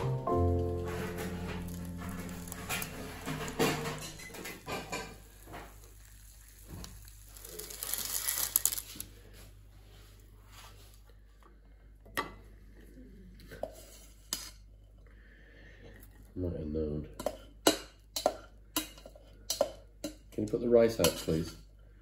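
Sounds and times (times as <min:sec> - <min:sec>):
music: 0:00.0 - 0:04.0
baking parchment crinkling: 0:00.6 - 0:11.1
spatula scraping baking tray: 0:00.7 - 0:05.7.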